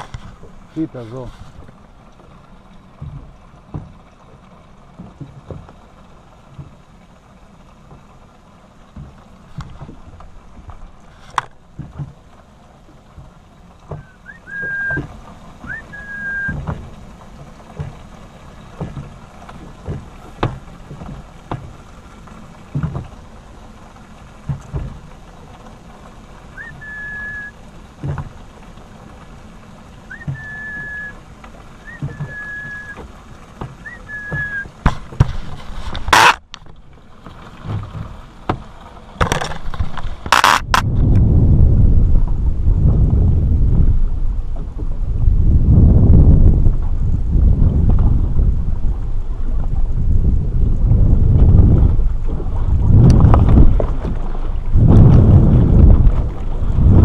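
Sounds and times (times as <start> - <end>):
water slapping against boat hull: 0.0 - 57.0
short high whistles: 14.0 - 15.1, 15.7 - 16.6, 26.6 - 27.6, 30.1 - 31.2, 31.8 - 33.0, 33.8 - 34.7.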